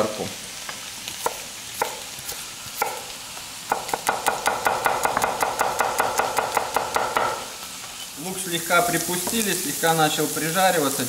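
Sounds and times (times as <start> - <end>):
knife chopping on wooden board: 1.2 - 3.0, 3.7 - 7.4.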